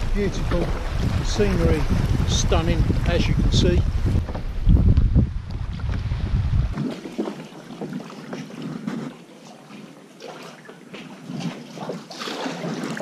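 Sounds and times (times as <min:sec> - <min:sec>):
kayak paddle splashing water: 0:00.0 - 0:04.9, 0:05.5 - 0:13.0
wind buffeting microphone: 0:00.0 - 0:09.1.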